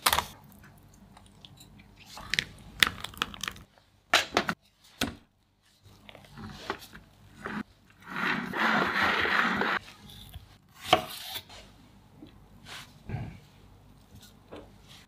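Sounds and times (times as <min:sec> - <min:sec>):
metal spatula scraping cream: 0:06.4 - 0:10.1.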